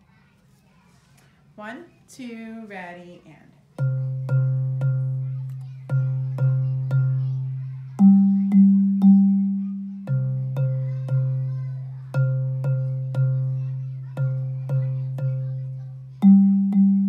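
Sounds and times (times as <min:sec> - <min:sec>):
bass xylophone notes: 0:03.8 - 0:17.0.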